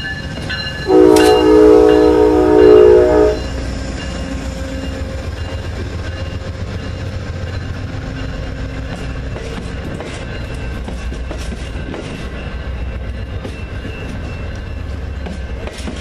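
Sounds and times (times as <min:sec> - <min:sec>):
train wheels rumbling on rails: 0:00.0 - 0:16.0
locomotive air horn chord: 0:00.9 - 0:03.7.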